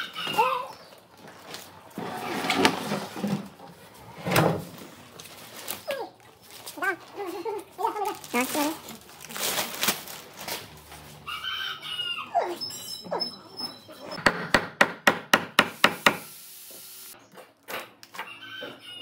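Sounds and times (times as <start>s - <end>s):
chicken calling: 0.0s - 1.0s, 11.1s - 14.2s, 18.2s - 19.0s
chisel tapping: 14.2s - 16.2s.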